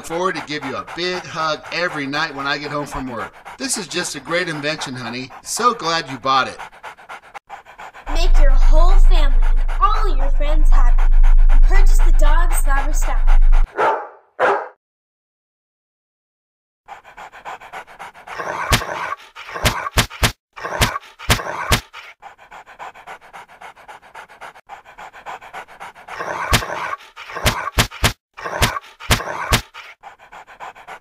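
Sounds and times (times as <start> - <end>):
dog panting heavily: 0.0 - 14.0, 16.9 - 31.0.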